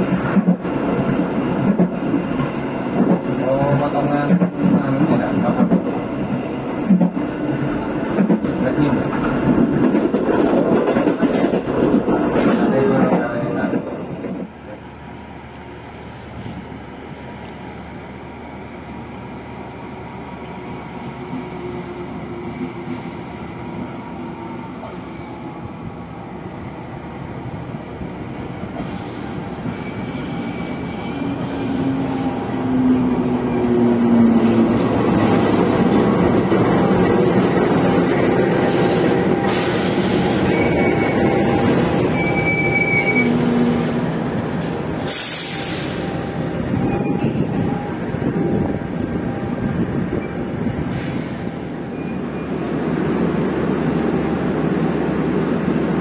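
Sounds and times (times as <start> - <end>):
diesel locomotive passing: 0.0 - 56.0
train coaches rumbling: 0.0 - 56.0
train wheel squeals: 28.8 - 32.1, 38.4 - 43.9, 45.0 - 52.7.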